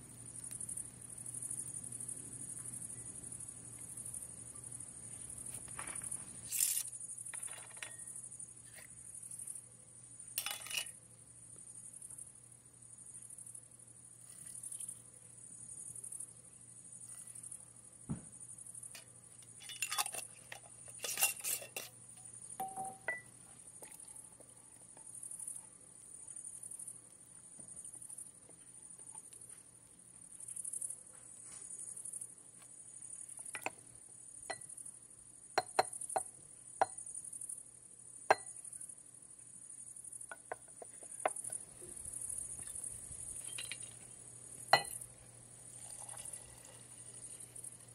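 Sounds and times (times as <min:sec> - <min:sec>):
glass and utensils clinking: 0:10.4 - 0:10.9, 0:19.6 - 0:21.9, 0:22.6 - 0:23.3, 0:43.4 - 0:44.0, 0:44.7 - 0:45.0, 0:45.8 - 0:46.8.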